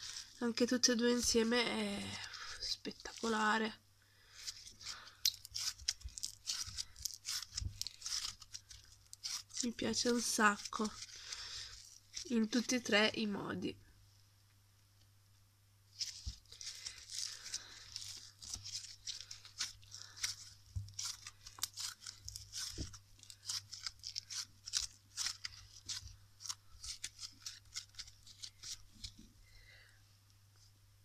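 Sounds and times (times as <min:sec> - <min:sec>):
crunchy slime crackling and popping: 0:04.4 - 0:12.8, 0:16.0 - 0:29.2.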